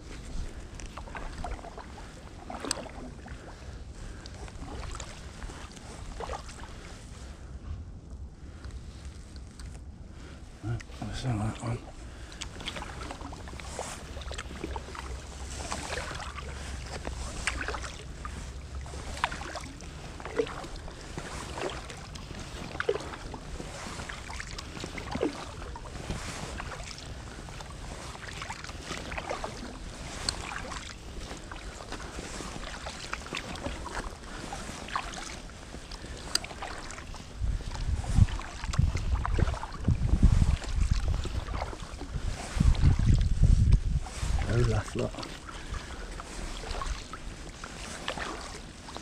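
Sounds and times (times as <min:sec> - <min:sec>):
paddle splashing in water: 0:00.0 - 0:07.3, 0:10.2 - 0:49.0
wind rumble on microphone: 0:00.0 - 0:49.0
water drips: 0:00.8 - 0:06.6, 0:12.1 - 0:42.0.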